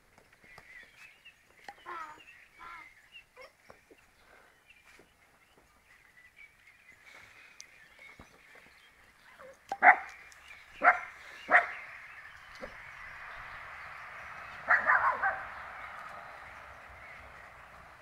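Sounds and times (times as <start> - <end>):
puppies yapping: 10.8 - 11.9, 14.6 - 16.1.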